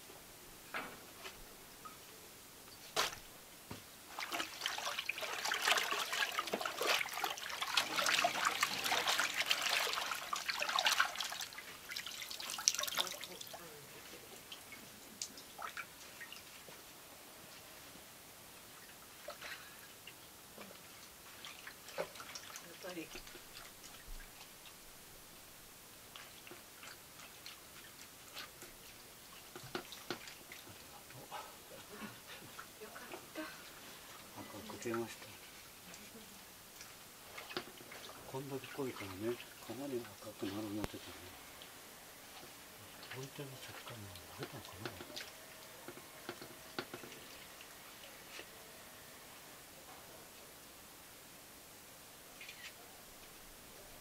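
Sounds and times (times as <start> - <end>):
wet cloth sloshing in liquid: 4.1 - 16.8, 20.6 - 24.8, 36.8 - 41.1
wet clicks and small splashes: 4.2 - 13.7, 14.4 - 16.8, 18.8 - 24.8, 26.1 - 31.2, 43.0 - 48.5.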